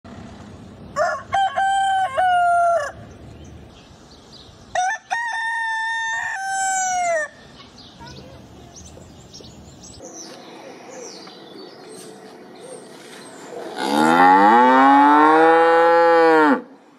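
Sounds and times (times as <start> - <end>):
rooster crowing: 1.0 - 3.0, 4.7 - 7.4.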